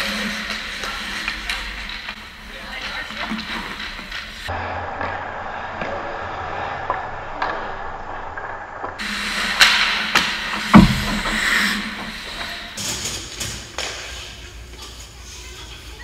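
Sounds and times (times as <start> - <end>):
stick and puck clacks: 0.0 - 12.6, 13.2 - 14.4
skates scraping on ice: 0.0 - 16.0
sharp hits: 9.0 - 12.8.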